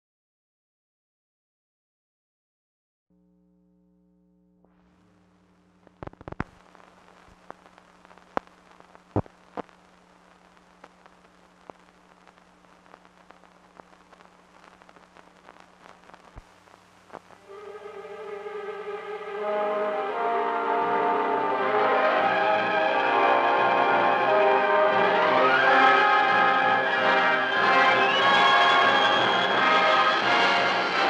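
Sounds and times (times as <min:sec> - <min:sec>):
faint steady hum: 0:03.2 - 0:21.9
film hiss with pops and clicks: 0:04.6 - 0:17.5
music: 0:17.4 - 0:31.0.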